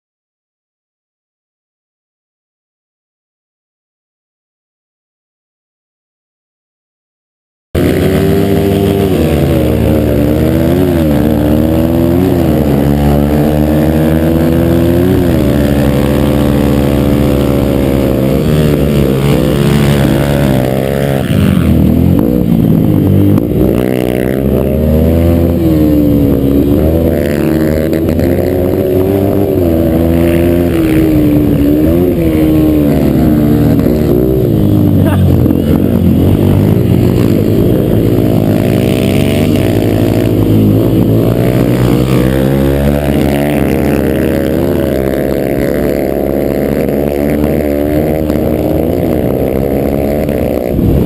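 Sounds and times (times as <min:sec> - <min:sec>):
motorcycle engine revving: 0:07.8 - 0:51.0.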